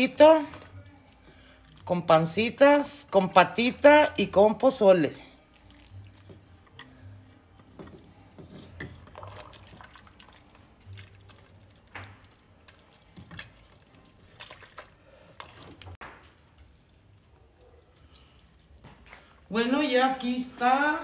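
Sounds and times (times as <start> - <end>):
liquid sloshing and dripping: 5.2 - 7.0, 8.7 - 19.4.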